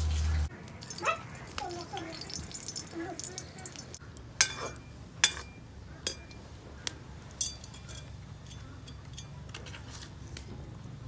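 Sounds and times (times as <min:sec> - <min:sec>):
spices frying in oil: 0:00.0 - 0:04.6
metal ladle clinking against iron pan: 0:04.4 - 0:06.4, 0:07.4 - 0:09.4.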